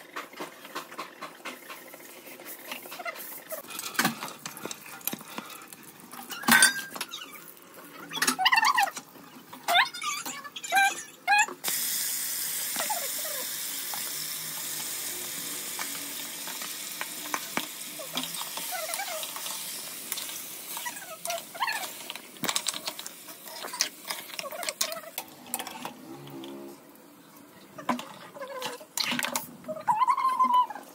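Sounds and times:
oil sizzling: 0:11.6 - 0:27.2.

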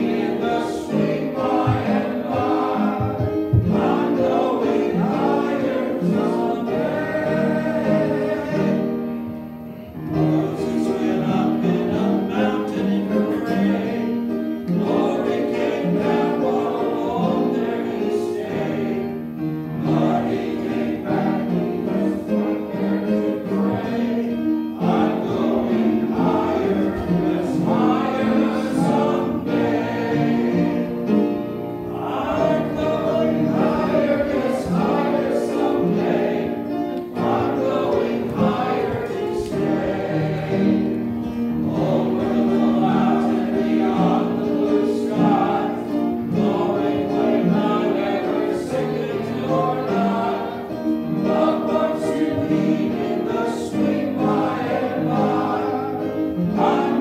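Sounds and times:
congregation singing a hymn: 0:00.0 - 0:57.0.

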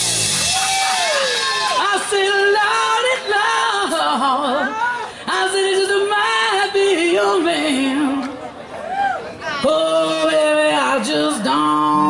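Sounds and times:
instrumental backing: 0:00.0 - 0:02.4.

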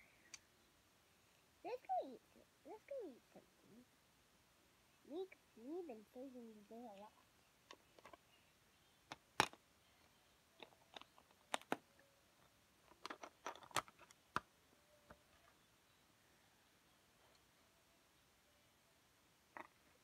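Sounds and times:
handling clicks and taps: 0:07.7 - 0:08.2, 0:10.6 - 0:11.8, 0:12.9 - 0:14.5.

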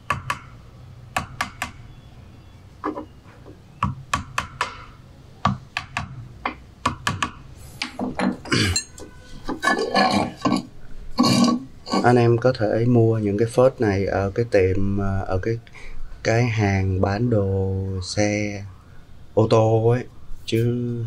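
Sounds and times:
hammer tapping on metal drift: 0:00.0 - 0:01.9, 0:03.8 - 0:09.0.

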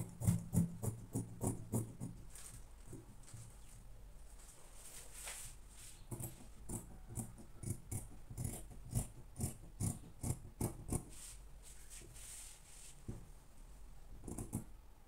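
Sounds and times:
scissors snipping fabric: 0:06.7 - 0:11.0.

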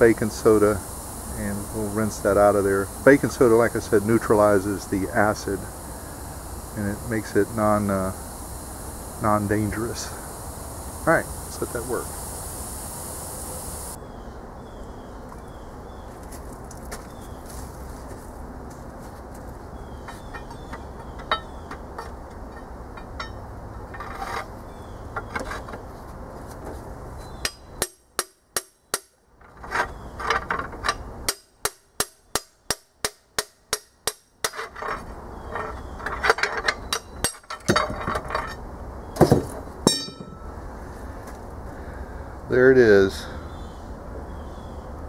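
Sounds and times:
hammer striking steel rod: 0:39.9 - 0:40.4.

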